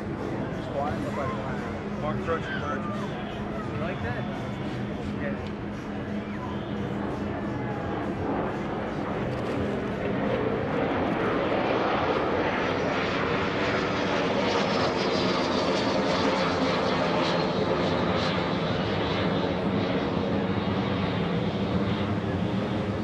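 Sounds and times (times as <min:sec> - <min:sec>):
jet engine in flight: 0:00.0 - 0:23.0.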